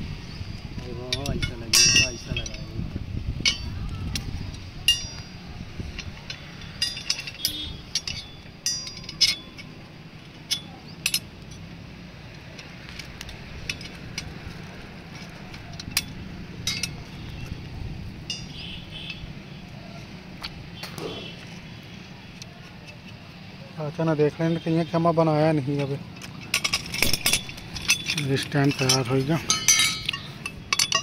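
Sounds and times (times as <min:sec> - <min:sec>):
metal parts clinking: 0:00.9 - 0:02.8, 0:03.4 - 0:19.8, 0:25.7 - 0:31.0.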